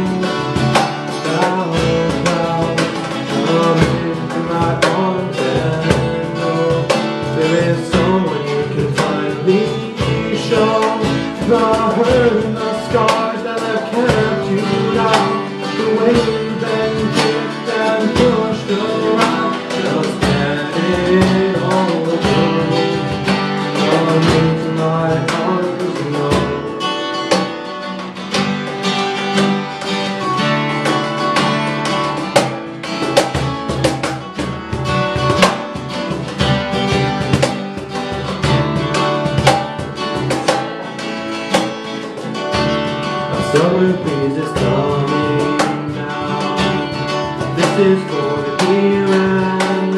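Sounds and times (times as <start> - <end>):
acoustic guitars strumming: 0.0 - 49.9.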